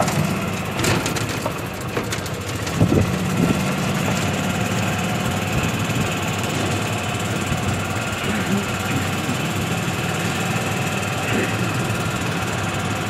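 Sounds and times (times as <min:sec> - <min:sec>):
knocks and rattles: 0:00.0 - 0:09.8
vehicle engine running: 0:00.0 - 0:13.0.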